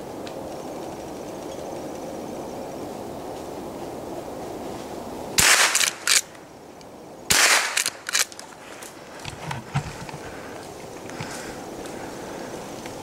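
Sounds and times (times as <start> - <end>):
gunshots: 5.4 - 6.2, 7.3 - 8.3.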